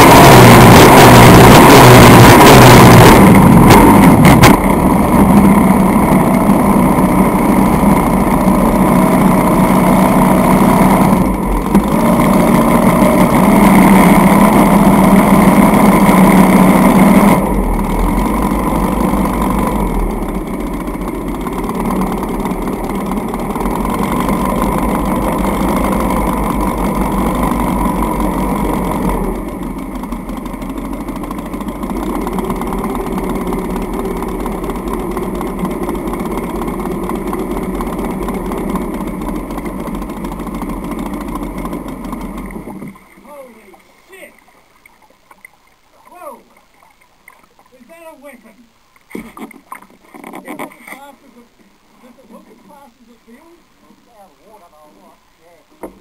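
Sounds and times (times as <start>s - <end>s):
boat engine running hard: 0.0s - 43.8s.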